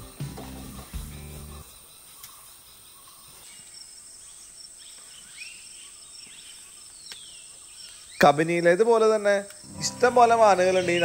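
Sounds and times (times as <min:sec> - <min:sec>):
high-pitched insect buzz: 0:00.0 - 0:02.6, 0:09.5 - 0:11.0
bird chirping: 0:00.0 - 0:08.9, 0:09.5 - 0:11.0.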